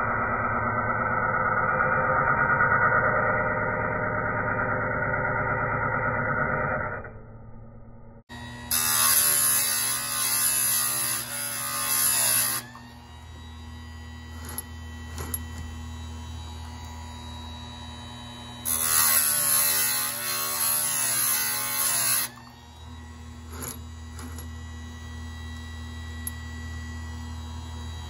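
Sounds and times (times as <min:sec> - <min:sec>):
grinding wheel whirring on steel: 0:08.3 - 0:28.0
sharpener motor humming: 0:08.3 - 0:28.0.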